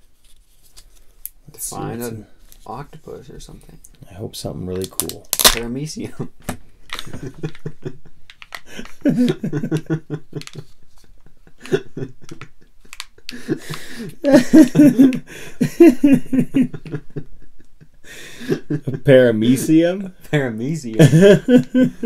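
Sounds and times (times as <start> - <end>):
wrapper crinkling and clicking: 4.8 - 5.7, 12.8 - 13.3
man laughing: 7.1 - 19.1, 20.9 - 22.0.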